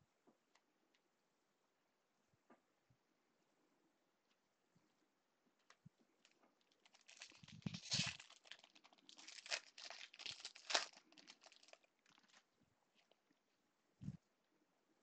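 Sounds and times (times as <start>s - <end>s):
foil wrapper tearing and crinkling: 6.6s - 12.4s.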